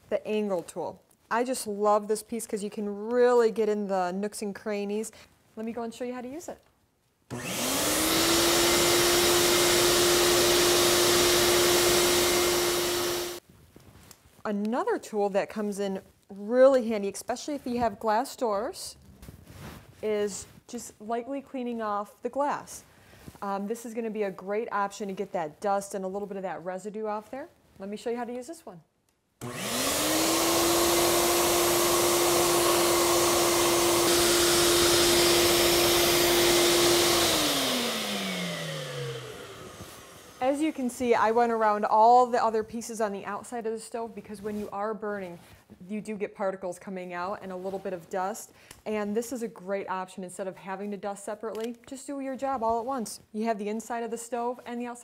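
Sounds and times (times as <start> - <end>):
vacuum motor whine: 7.3 - 13.4, 29.4 - 40.4
air rushing through vacuum: 37.4 - 40.4.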